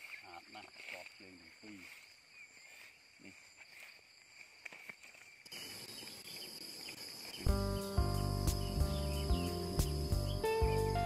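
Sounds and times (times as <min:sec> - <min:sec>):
high drone of insects: 0:00.0 - 0:11.0
background music: 0:07.5 - 0:11.0.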